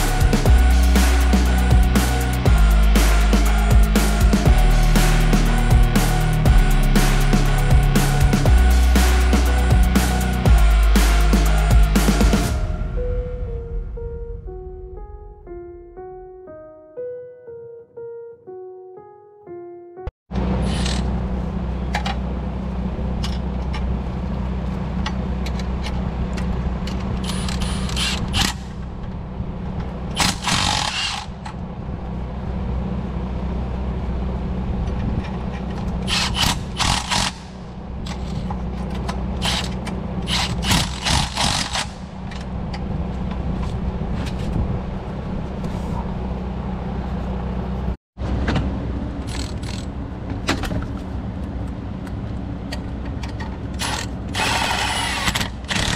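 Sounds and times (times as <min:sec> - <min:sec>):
steady low hum: 0:00.0 - 0:16.7
impact wrench bursts: 0:30.2 - 0:31.4, 0:36.1 - 0:37.6, 0:39.4 - 0:42.1, 0:53.8 - 0:55.9.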